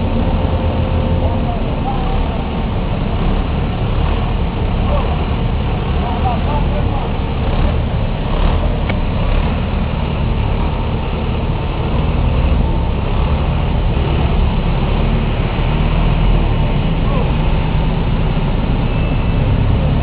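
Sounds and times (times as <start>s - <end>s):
deep rumble: 0.0s - 20.0s
jet engine noise: 6.8s - 20.0s.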